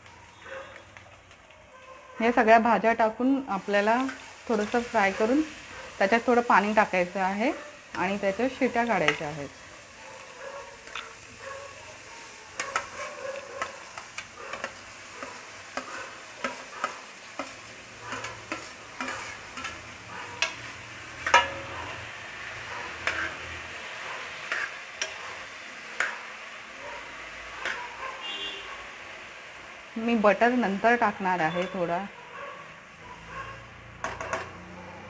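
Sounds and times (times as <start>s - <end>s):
vegetables sizzling in oil: 2.2s - 33.0s
steel spoon scraping a pot: 14.5s - 21.9s, 22.7s - 23.7s, 24.4s - 25.2s.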